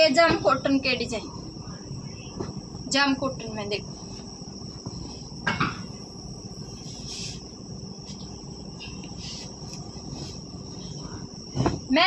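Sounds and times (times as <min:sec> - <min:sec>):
crickets chirring: 0:00.0 - 0:12.0
fabric rustling: 0:03.6 - 0:05.4, 0:09.1 - 0:12.0.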